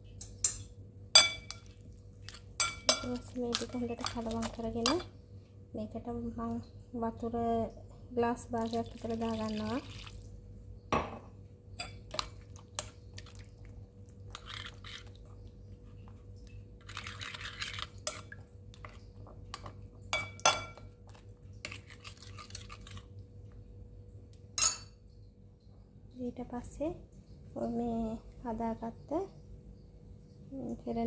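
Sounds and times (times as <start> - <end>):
faint steady hum: 0.0 - 31.0
spoon clinking against ceramic bowl: 0.2 - 1.7, 2.3 - 5.1, 11.8 - 12.9, 19.6 - 20.9, 24.6 - 25.0.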